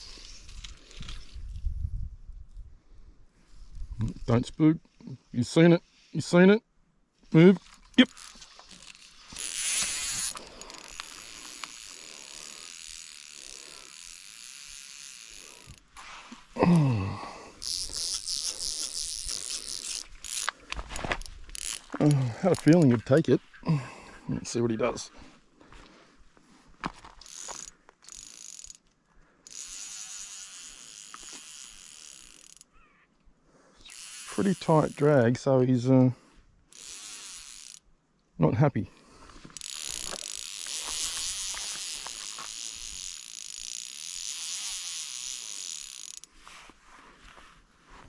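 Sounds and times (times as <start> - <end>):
fishing reel drag buzzing: 7.7 - 16.6, 17.2 - 22.1, 27.2 - 32.7, 33.8 - 35.4, 36.7 - 37.9, 39.4 - 46.4.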